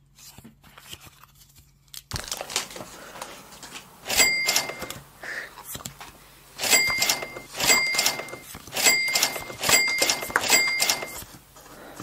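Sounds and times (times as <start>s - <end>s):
cash register ka-ching effect: 4.0s - 5.1s, 6.6s - 11.3s.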